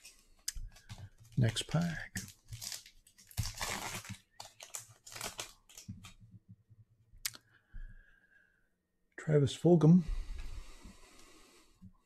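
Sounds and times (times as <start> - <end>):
foil wrapper crinkling and tearing: 0.8 - 6.2.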